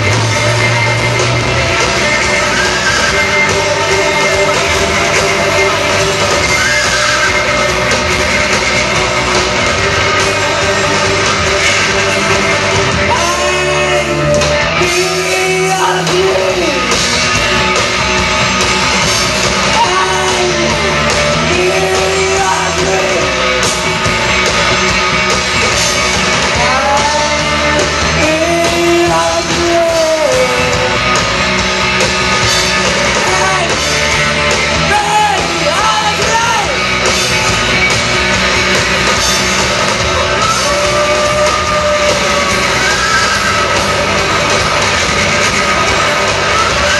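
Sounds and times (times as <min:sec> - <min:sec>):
live band playing: 0:00.0 - 0:46.9
person singing long notes: 0:12.9 - 0:17.0, 0:26.6 - 0:31.0.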